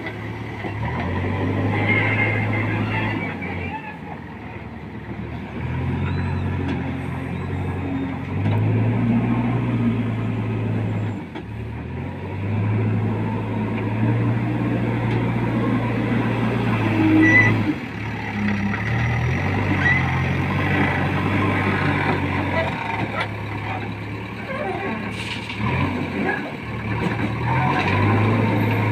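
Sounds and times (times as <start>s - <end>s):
diesel engine revving: 0.0s - 28.9s.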